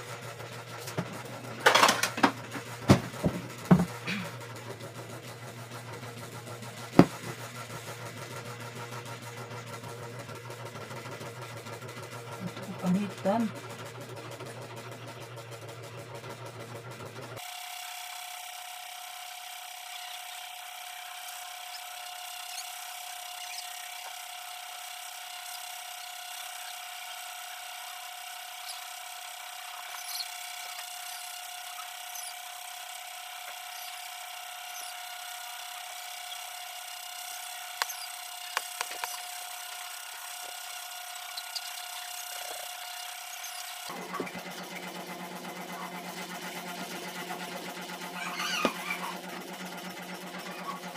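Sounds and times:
sharp knocks: 7.0s - 7.3s
constant high hum: 19.7s - 44.3s
cleaver scraping fruit skin: 20.9s - 43.9s.

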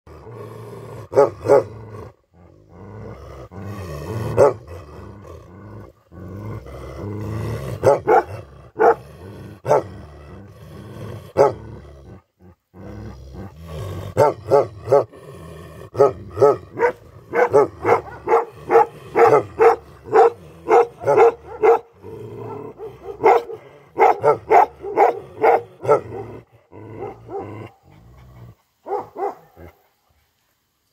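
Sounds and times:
dog growling low: 0.1s - 28.7s
dog barking deeply: 1.0s - 2.0s, 4.1s - 5.0s, 7.7s - 10.0s, 11.3s - 11.8s, 14.1s - 15.2s, 15.9s - 27.8s, 28.8s - 29.8s.

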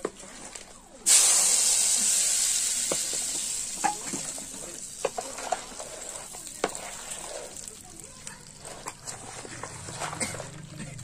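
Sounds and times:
hot oil sizzling: 1.1s - 9.0s.

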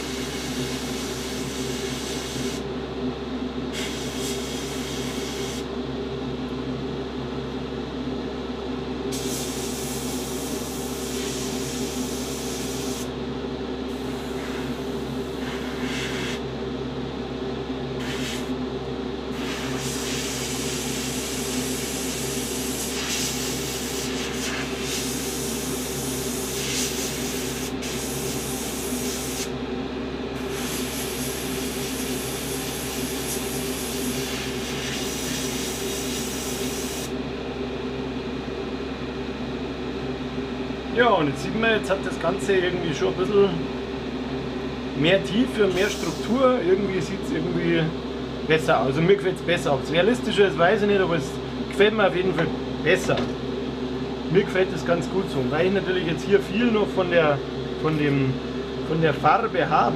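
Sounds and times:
low mechanical hum: 0.0s - 59.9s
airbrush spraying hiss: 9.1s - 13.1s, 15.4s - 16.4s, 18.0s - 18.5s, 19.4s - 25.7s, 26.3s - 29.5s, 30.5s - 37.1s, 45.8s - 46.3s.

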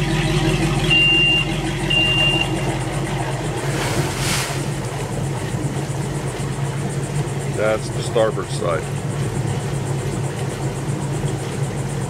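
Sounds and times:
boat engines idling: 0.0s - 12.0s
exhaust water hissing: 0.0s - 12.0s
short high beep: 0.9s - 2.6s.

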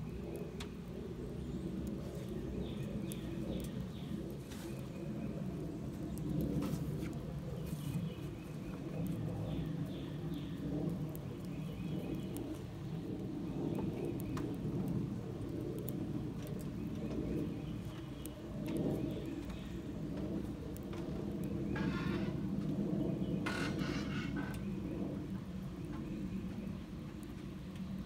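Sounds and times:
wood fire crackling: 0.0s - 28.0s
birds calling: 21.4s - 26.8s.

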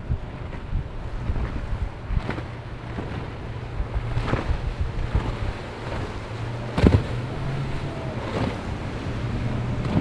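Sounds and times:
outboard motor hum: 0.0s - 10.0s
water rushing and splashing: 0.0s - 10.0s.

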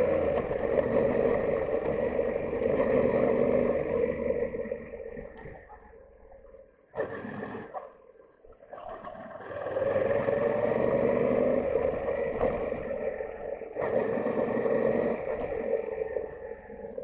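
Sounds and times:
motorcycle engine riding: 0.0s - 5.4s.

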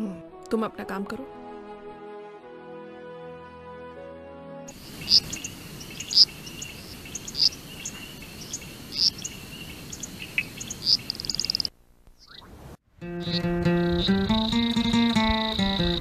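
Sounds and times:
crickets chirping: 4.7s - 12.4s, 13.3s - 16.0s.

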